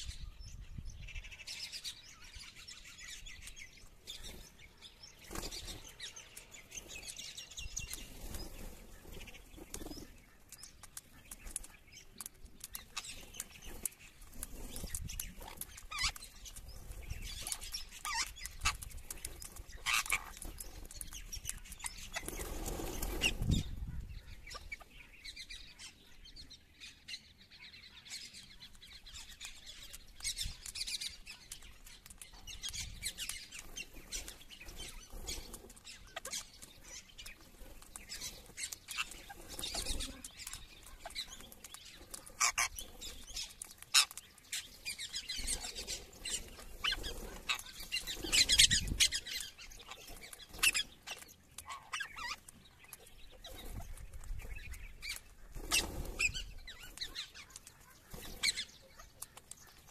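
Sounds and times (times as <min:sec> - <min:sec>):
wing flapping: 0:06.8 - 0:24.1, 0:30.3 - 0:52.5, 0:53.4 - 0:59.9
parakeets screeching: 0:14.9 - 0:25.5, 0:29.1 - 0:52.5, 0:53.4 - 0:59.9.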